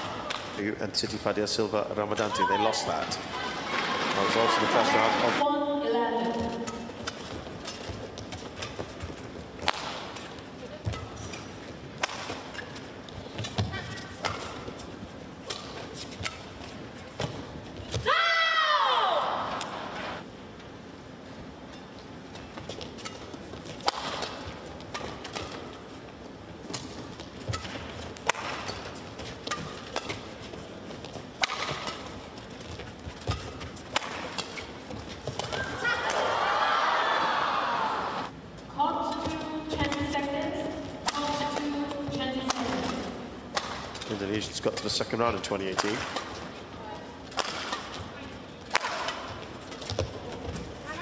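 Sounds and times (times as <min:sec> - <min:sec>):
indoor arena background: 0:00.0 - 0:51.0
crowd cheering: 0:02.5 - 0:05.4, 0:35.5 - 0:38.3
rackets striking shuttlecock: 0:06.4 - 0:17.5, 0:22.8 - 0:25.9, 0:26.6 - 0:36.2, 0:41.0 - 0:46.6, 0:47.2 - 0:50.2.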